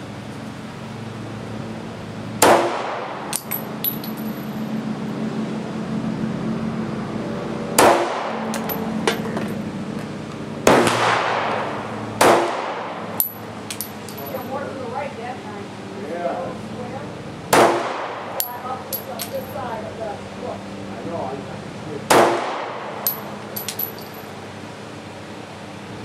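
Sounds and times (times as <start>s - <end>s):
pistol shots: 2.4s - 3.2s, 10.6s - 12.9s, 17.5s - 18.3s, 22.1s - 22.9s
metallic clinks of casings: 3.3s - 4.7s, 8.6s - 9.6s, 13.2s - 14.5s, 18.4s - 19.7s, 23.0s - 24.4s.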